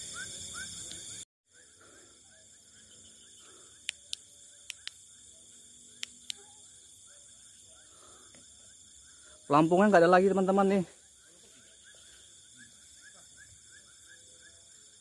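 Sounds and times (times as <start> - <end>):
crickets trilling: 0.0 - 15.0
insect chirps: 0.0 - 15.0
sharp clicks: 3.8 - 5.0.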